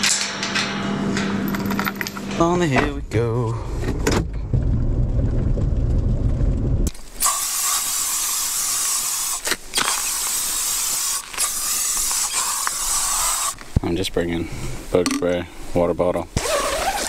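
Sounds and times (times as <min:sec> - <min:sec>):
car engine rumbling: 0:00.5 - 0:08.5
spray can hissing: 0:07.2 - 0:13.6.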